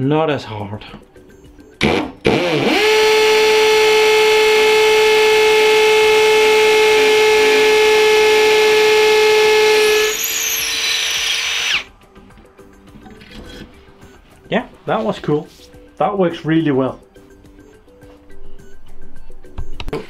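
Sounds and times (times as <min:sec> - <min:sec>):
hammer drill boring into brick: 0:01.8 - 0:11.9.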